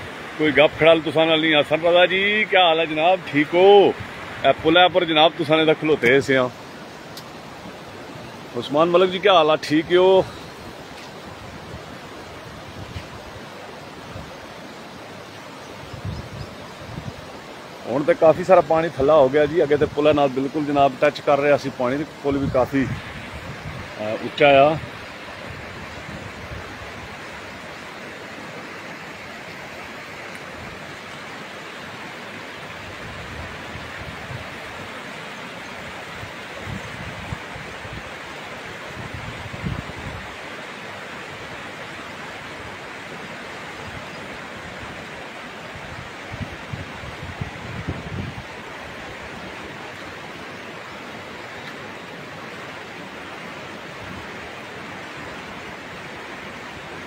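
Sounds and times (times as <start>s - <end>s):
flooded river rushing: 0.0s - 57.0s.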